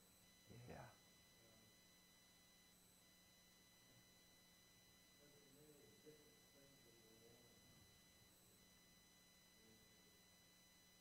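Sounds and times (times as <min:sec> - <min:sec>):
faint high electrical whine: 0:00.0 - 0:11.0
faint distant voice: 0:00.5 - 0:01.6, 0:05.2 - 0:07.8.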